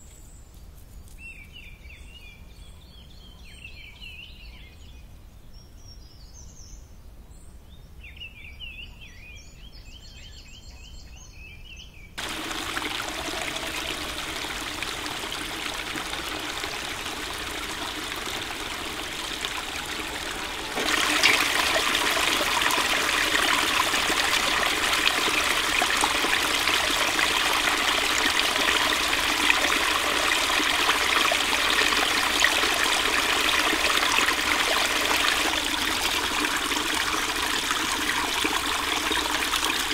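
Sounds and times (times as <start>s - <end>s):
birds chirping: 12.2s - 39.9s
stream trickling over rocks: 12.2s - 39.9s.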